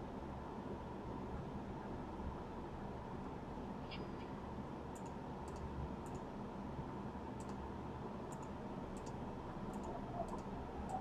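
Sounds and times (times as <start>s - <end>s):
low hum: 0.0s - 11.0s
computer mouse clicking: 4.9s - 6.3s, 7.4s - 7.6s, 8.3s - 11.0s.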